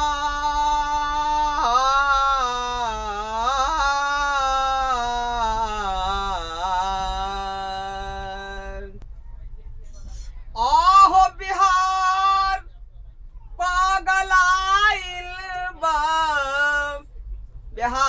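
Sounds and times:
man singing long note: 0.0 - 9.0.

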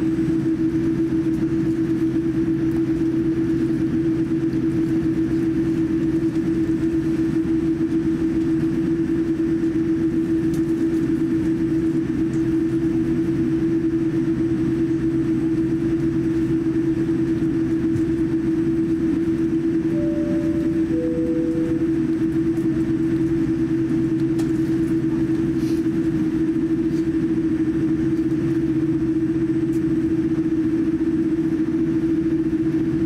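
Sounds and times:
airliner cabin hum: 0.0 - 33.0
brief higher tone: 19.9 - 22.3.

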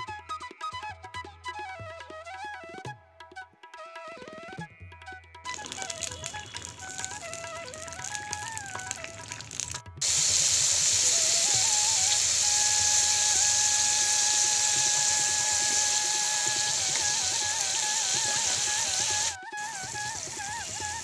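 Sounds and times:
background music with flute melody: 0.0 - 21.0
food sizzling in hot oil: 5.5 - 21.0.

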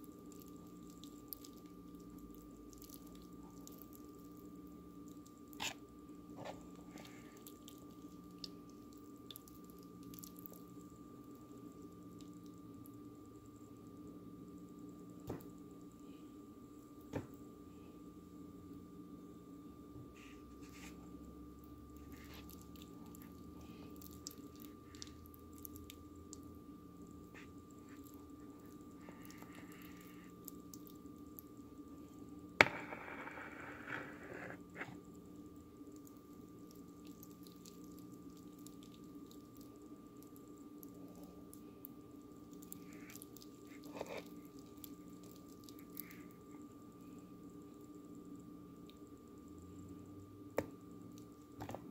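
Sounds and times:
spoon squishing cooked pasta: 0.0 - 10.8, 22.0 - 26.5, 27.3 - 31.5, 35.9 - 46.4
faint steady hum: 0.0 - 51.9.

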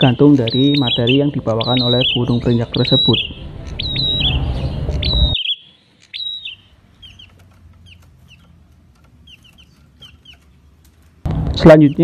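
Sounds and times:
bird chirping sharply: 0.0 - 8.5
background noise: 0.0 - 12.0.

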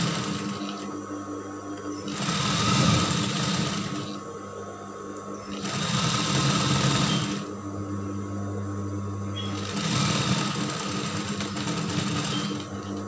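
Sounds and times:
sewing machine stitching: 0.0 - 0.9, 2.0 - 4.2, 5.5 - 7.5, 9.4 - 13.0
sewing machine motor humming: 0.0 - 1.0, 1.9 - 4.2, 5.4 - 7.5, 9.4 - 13.0.

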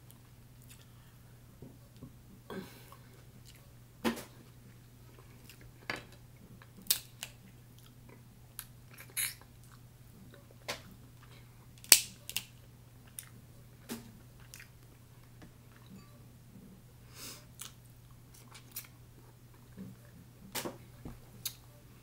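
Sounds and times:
crab shells cracking: 6.8 - 7.4, 11.8 - 12.5.

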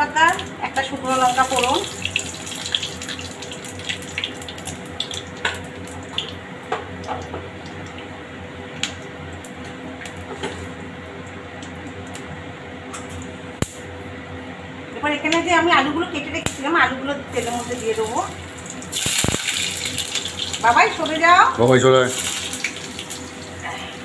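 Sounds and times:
spices sizzling in hot oil: 0.0 - 8.1, 16.4 - 24.0.

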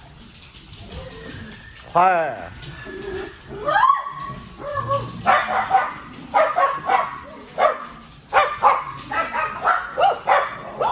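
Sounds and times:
dogs barking and yipping: 2.5 - 10.9.

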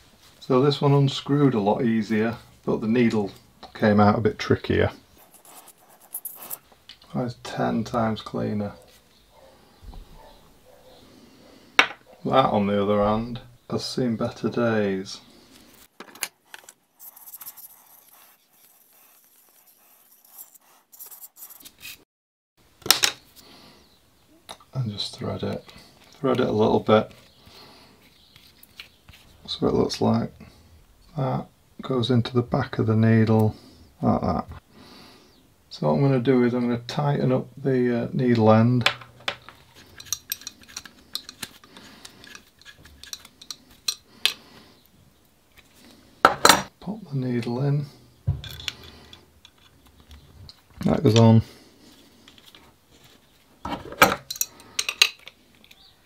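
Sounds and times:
metal parts scraping and clicking: 5.2 - 6.6, 16.0 - 22.0, 39.4 - 44.4.

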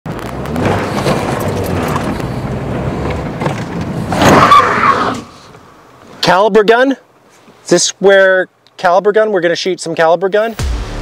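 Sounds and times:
tyres grinding on dirt road: 0.1 - 5.6.

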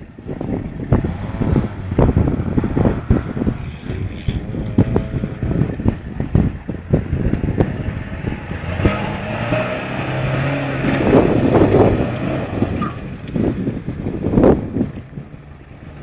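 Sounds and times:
pickup truck engine running: 0.0 - 16.0
tires on loose dirt and gravel: 0.0 - 16.0.

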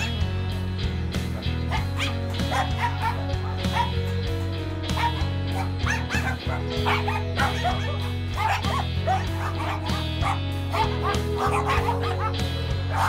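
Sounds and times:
many dogs barking: 0.0 - 0.3, 1.2 - 13.0
music with held low notes: 0.0 - 13.0.

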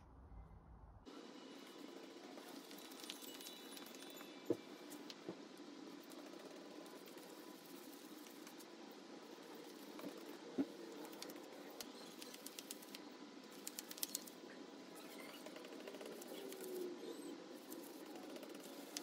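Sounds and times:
paintbrush strokes: 5.8 - 14.4, 17.5 - 19.0.

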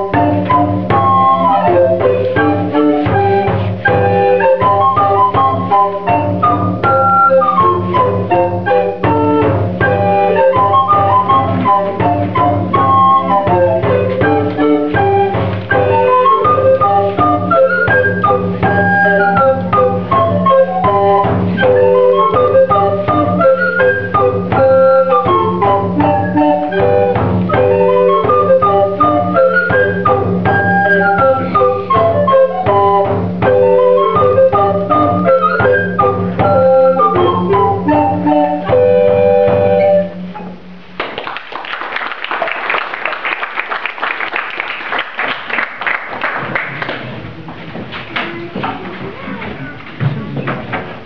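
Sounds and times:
recorder ensemble playing: 0.0 - 40.8
frame drum beat: 0.0 - 41.2
audience applause: 41.0 - 47.5.

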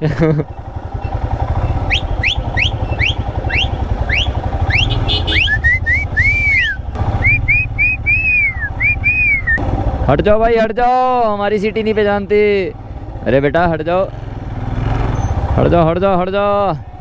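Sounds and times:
motorcycle engine running: 0.0 - 10.6, 11.4 - 17.0
sharp herding whistles: 1.8 - 9.6.

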